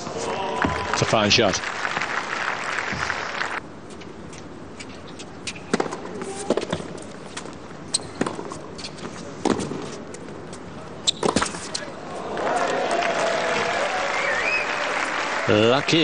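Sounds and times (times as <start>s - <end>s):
crowd applause: 0.2s - 3.6s, 12.2s - 16.0s
tennis ball bouncing on court: 5.4s - 6.9s, 8.2s - 8.6s.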